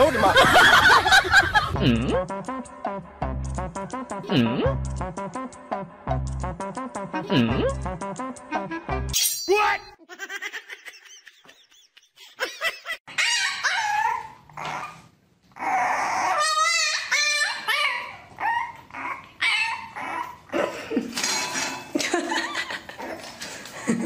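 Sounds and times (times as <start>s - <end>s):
dog whining and yipping: 13.1s - 20.5s.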